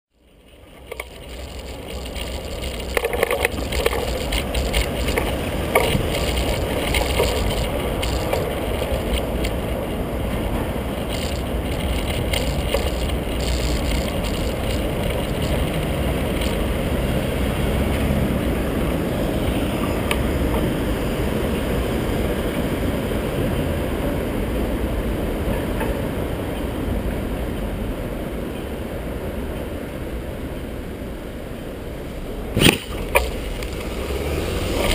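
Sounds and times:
low road rumble: 0.1 - 34.9
bike knocks and rattles: 0.4 - 17.3, 32.6 - 34.9
wind on microphone: 0.8 - 21.4.

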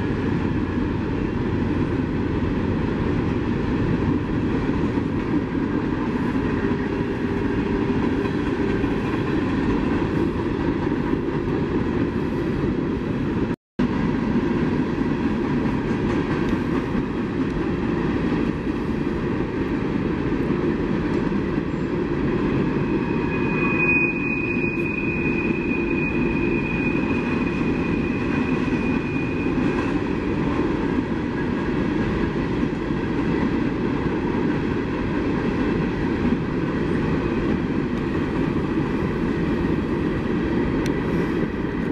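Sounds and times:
train cars rumbling: 0.0 - 41.9
wheel squeal: 22.7 - 30.1.

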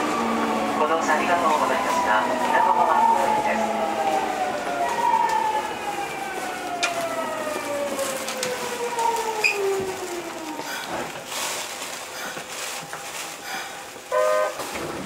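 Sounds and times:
train motors whining: 2.7 - 11.3.

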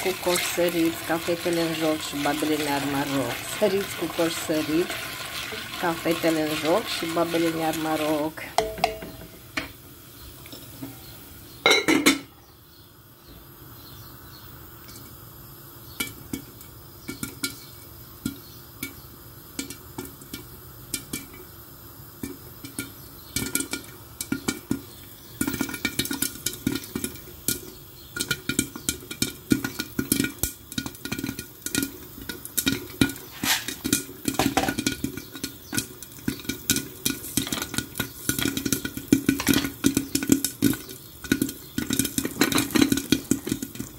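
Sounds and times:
popcorn popping against lid: 0.0 - 9.8, 15.8 - 43.9
oil sizzling: 0.0 - 43.9.

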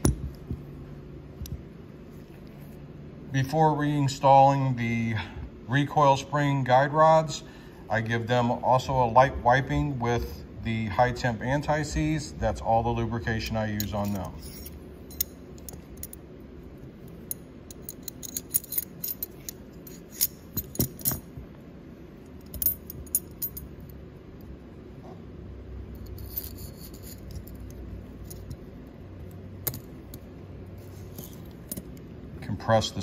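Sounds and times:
metal parts clicking and clinking: 13.4 - 16.2, 16.8 - 21.4, 22.2 - 24.0, 25.9 - 32.1.

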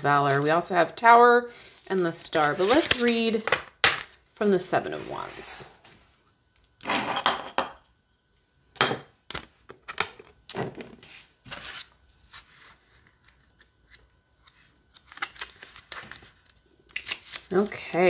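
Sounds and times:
book pages flipping: 11.0 - 17.7.

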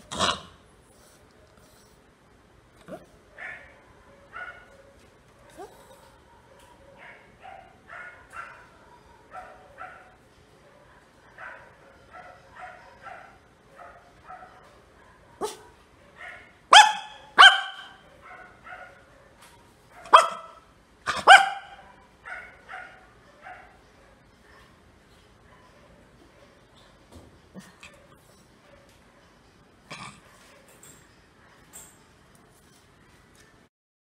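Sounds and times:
dog barking: 2.9 - 24.7.

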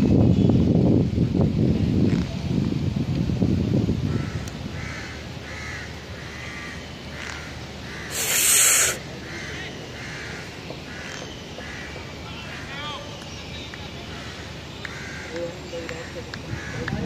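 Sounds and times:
crows cawing: 4.1 - 12.7, 14.1 - 15.4, 16.5 - 16.9
loud hiss: 8.0 - 9.1.

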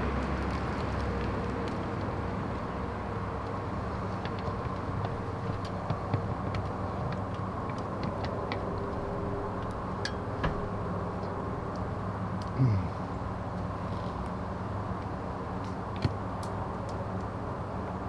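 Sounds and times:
low hum with held tones: 0.0 - 18.0.

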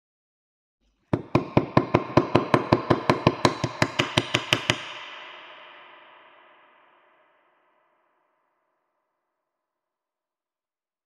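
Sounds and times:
hammer striking metal: 1.2 - 7.2.

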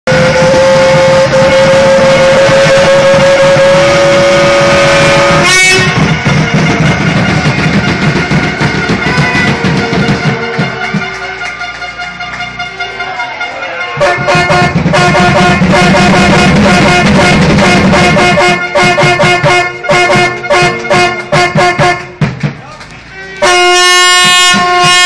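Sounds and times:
pump engine revving high: 0.1 - 10.3, 14.1 - 22.0.

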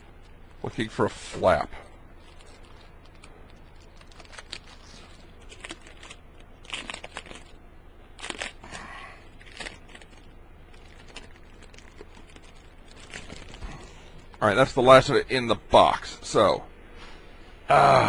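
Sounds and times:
packaging crinkling: 2.2 - 14.4.

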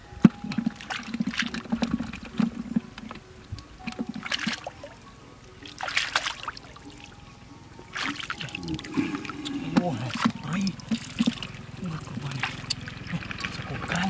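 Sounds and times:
hands splashing in muddy water: 5.7 - 6.6, 7.9 - 11.6, 12.2 - 14.0
loud splashes: 5.7 - 6.6, 7.9 - 14.0.

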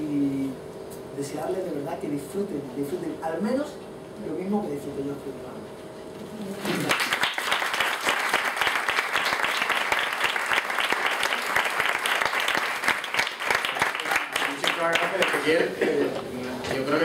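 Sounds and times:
audience applauding: 6.6 - 15.6.

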